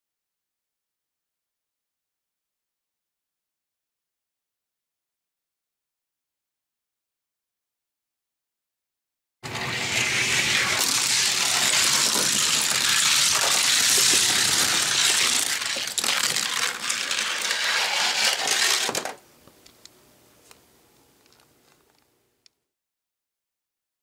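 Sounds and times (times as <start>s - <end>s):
toy cars rattling down track: 9.4s - 19.2s.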